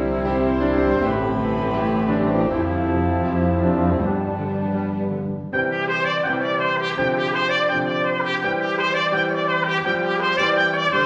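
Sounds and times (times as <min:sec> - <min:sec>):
chamber ensemble playing: 0:00.0 - 0:11.0
trumpets and trombone melody: 0:05.6 - 0:11.0.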